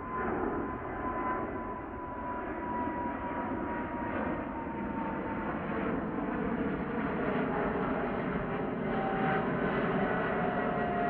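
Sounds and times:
jet engines rumbling and whining: 0.0s - 11.0s.

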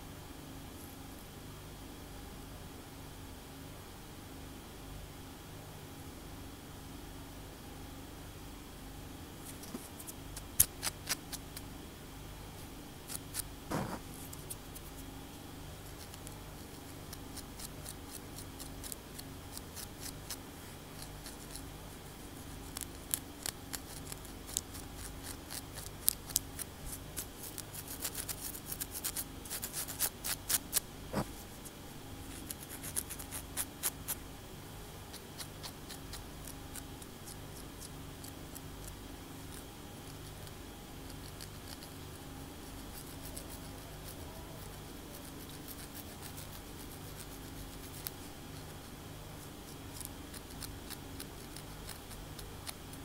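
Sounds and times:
fingernails scratching and tapping scalp: 9.4s - 11.7s, 13.1s - 15.0s, 15.8s - 21.7s, 22.4s - 31.4s, 32.3s - 34.2s, 35.1s - 42.0s, 42.6s - 53.0s.

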